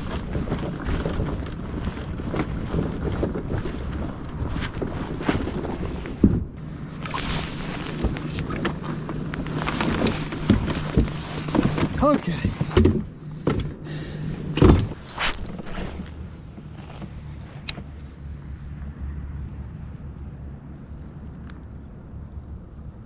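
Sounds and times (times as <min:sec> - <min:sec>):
footsteps crunching on gravel: 0:14.9 - 0:18.0.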